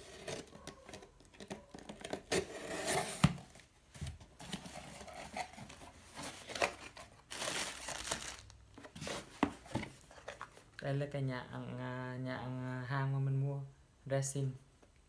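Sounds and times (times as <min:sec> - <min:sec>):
plastic packing crinkling: 0:04.4 - 0:09.4.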